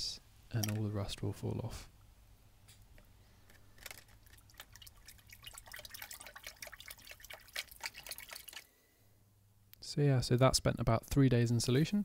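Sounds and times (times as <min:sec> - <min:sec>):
liquid dripping and splashing: 0:03.8 - 0:08.7.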